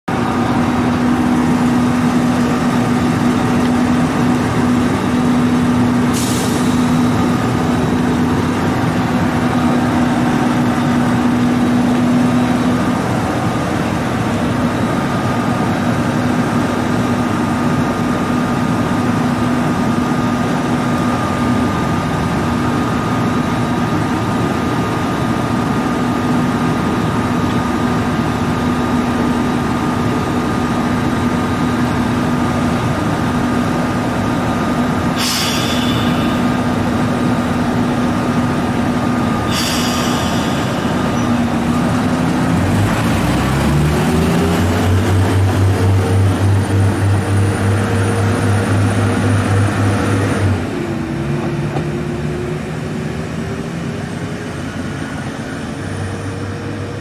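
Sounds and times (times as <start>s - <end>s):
diesel engine idling: 0.1s - 57.0s
short hiss of air: 6.1s - 7.2s, 35.2s - 36.6s, 39.5s - 41.2s.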